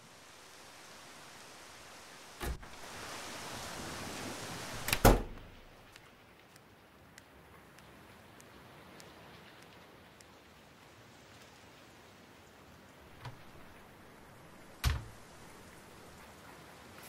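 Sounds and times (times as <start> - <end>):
steady hiss: 0.0 - 17.0
door latch click: 4.9 - 5.5, 14.8 - 15.1
heavy knocks on door: 14.8 - 15.1.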